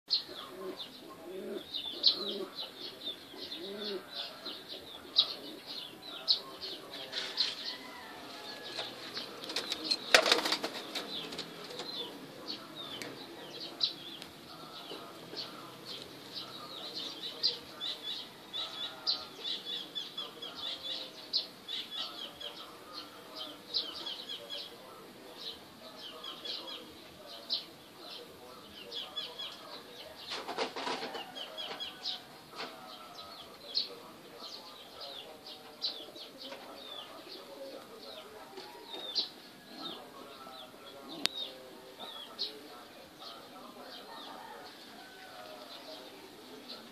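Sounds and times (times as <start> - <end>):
pigeon cooing: 0.1 - 46.9
small birds chirping: 0.1 - 46.9.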